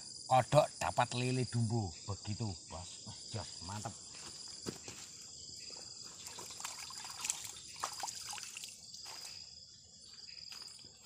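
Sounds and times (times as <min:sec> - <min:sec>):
high-pitched insect chorus: 0:00.0 - 0:11.0
water splashes and drips: 0:06.0 - 0:09.4.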